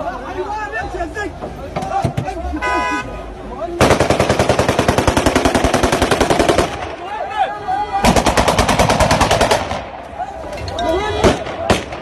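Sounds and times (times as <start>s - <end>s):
automatic gunfire bursts: 3.8s - 6.8s, 8.0s - 9.8s
people shouting: 7.0s - 8.5s, 10.0s - 12.0s.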